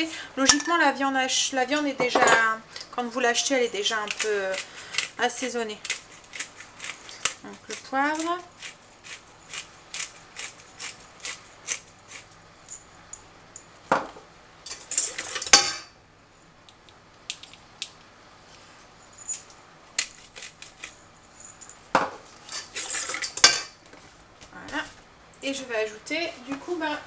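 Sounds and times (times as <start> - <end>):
pepper mill grinding: 3.7 - 12.4, 19.3 - 21.1, 22.5 - 23.4.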